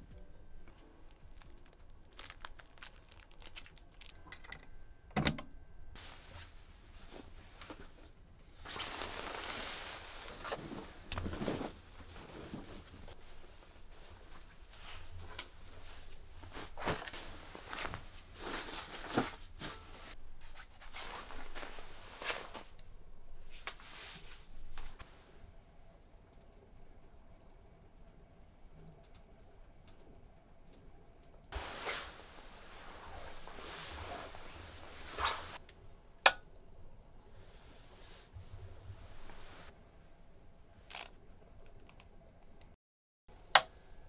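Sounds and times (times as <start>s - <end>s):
faint low hum: 0.0s - 8.4s
plastic bag crinkling: 0.6s - 4.6s
bed linen rustling: 5.9s - 25.4s, 31.5s - 35.6s, 37.4s - 39.8s.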